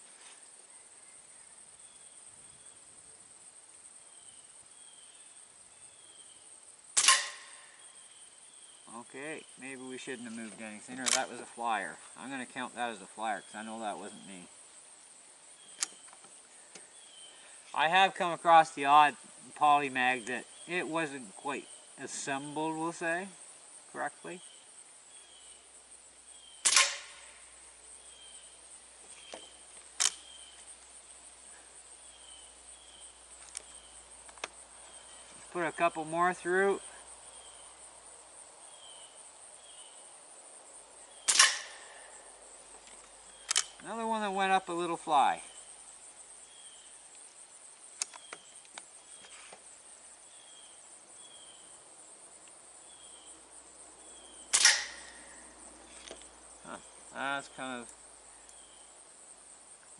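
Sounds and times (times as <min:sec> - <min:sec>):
insects buzzing and chirping: 0:00.0 - 0:59.9
air rifle shot: 0:07.0 - 0:07.7, 0:26.6 - 0:27.4, 0:41.2 - 0:42.0, 0:54.5 - 0:55.3
light clicks: 0:10.9 - 0:11.4, 0:42.9 - 0:43.9
short clicks: 0:11.0 - 0:11.3, 0:15.8 - 0:16.0, 0:26.6 - 0:27.2, 0:30.0 - 0:30.3, 0:41.2 - 0:41.8, 0:43.4 - 0:43.9, 0:54.5 - 0:55.2.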